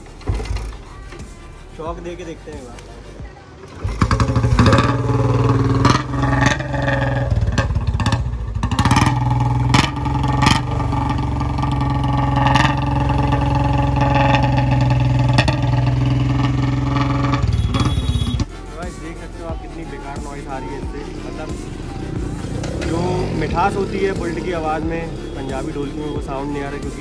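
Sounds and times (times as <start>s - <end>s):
motorcycle engine running roughly: 3.8s - 18.5s, 20.6s - 27.0s.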